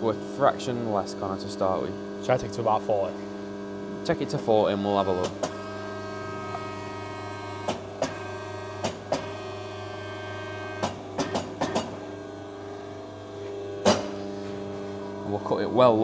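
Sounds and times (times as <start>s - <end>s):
tube bender humming: 2.2s - 16.0s.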